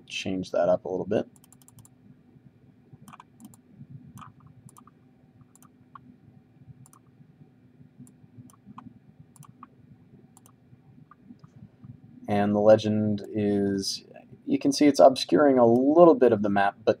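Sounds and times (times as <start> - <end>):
computer mouse clicking: 1.3 - 1.9, 3.1 - 3.6, 4.2 - 6.1, 6.8 - 7.1, 8.0 - 9.7, 10.4 - 11.6.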